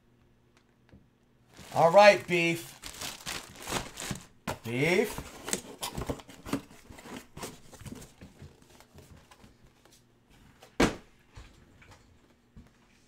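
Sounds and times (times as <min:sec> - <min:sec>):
packaging rustling and clicking: 0:01.5 - 0:01.9, 0:02.6 - 0:04.4, 0:05.2 - 0:09.4.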